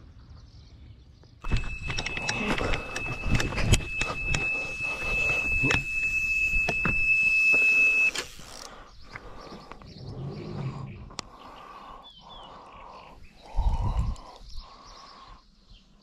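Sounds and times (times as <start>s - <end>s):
bite alarm high continuous tone: 1.4s - 8.4s.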